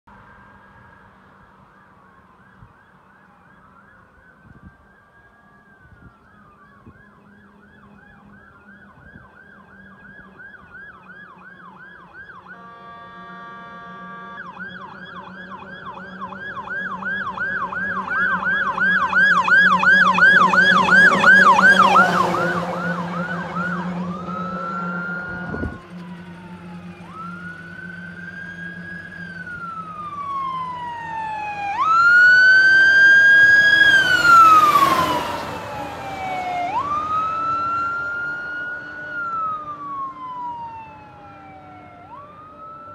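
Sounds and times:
wail siren: 0.1 - 42.9
yelp siren: 0.2 - 42.9
truck engine humming: 7.1 - 42.9
horn blast: 12.4 - 16.2.

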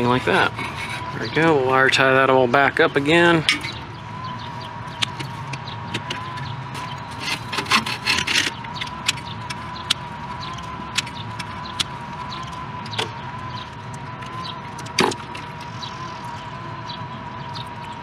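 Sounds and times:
hands scraping and rustling wiring: 0.0 - 2.0, 4.4 - 16.5
steady high whine: 0.0 - 18.0.

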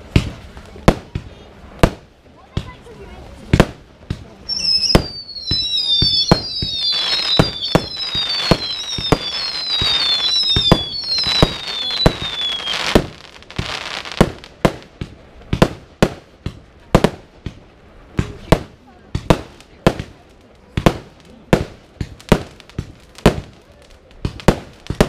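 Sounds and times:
firework bangs and pops: 0.0 - 25.0
firework whistles falling in pitch: 4.5 - 13.2.

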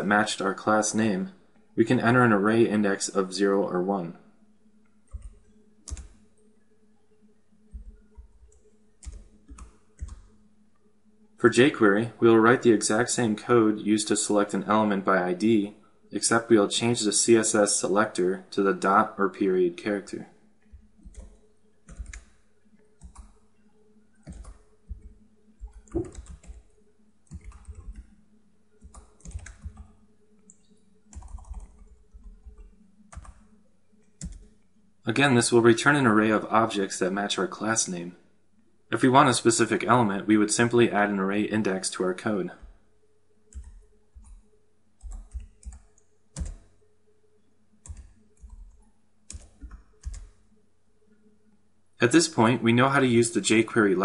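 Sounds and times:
keyboard typing clicks: 4.8 - 6.2, 7.7 - 10.4, 20.7 - 23.4, 24.2 - 28.1, 28.8 - 34.6, 43.5 - 46.8, 47.8 - 50.4.

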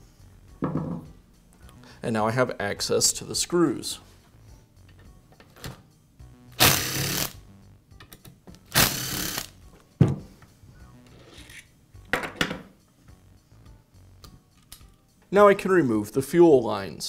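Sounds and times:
power screwdriver whirring: 6.6 - 7.4, 8.7 - 9.5.

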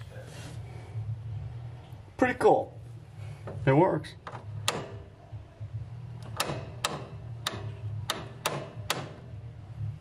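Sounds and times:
steady low hum: 0.0 - 10.0
parking brake ratchet clicks: 6.2 - 9.2.

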